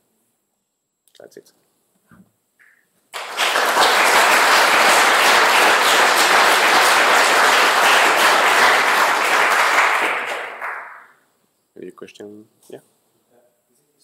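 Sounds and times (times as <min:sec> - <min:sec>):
audience applauding: 0:03.1 - 0:11.2.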